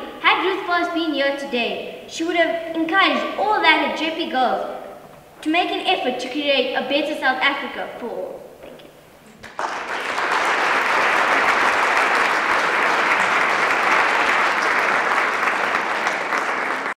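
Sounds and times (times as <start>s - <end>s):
audience applauding: 9.4s - 17.0s.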